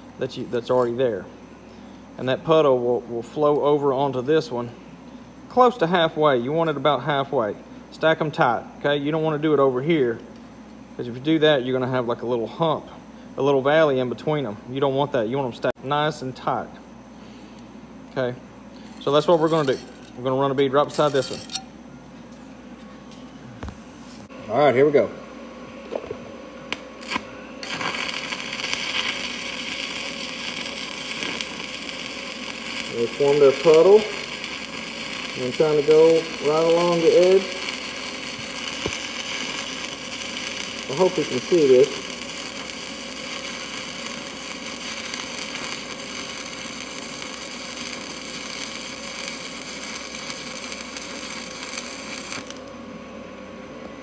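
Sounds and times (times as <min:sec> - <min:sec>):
welding arc sizzling: 0:00.0 - 0:04.9, 0:18.2 - 0:22.4, 0:26.7 - 0:53.0
welding rod scratch ticks: 0:26.7 - 0:52.6.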